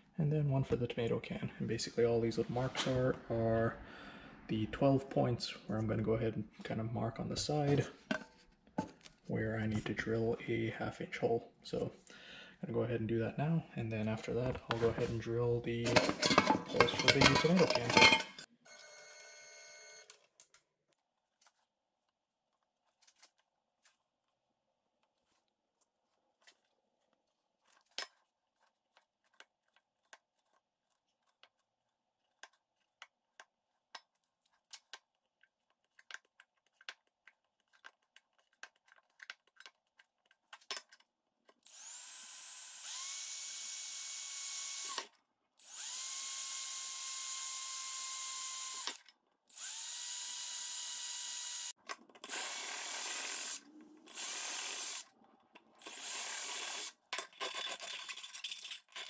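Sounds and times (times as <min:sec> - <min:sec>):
cordless drill drilling metal: 0:41.6 - 0:55.1, 0:55.8 - 0:57.9.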